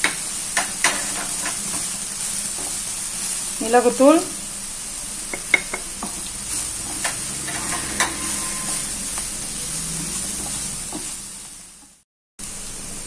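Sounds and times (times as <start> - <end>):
vegetables sizzling in oil: 0.0 - 13.0
spatula scraping a pan: 0.6 - 2.8, 5.6 - 11.3.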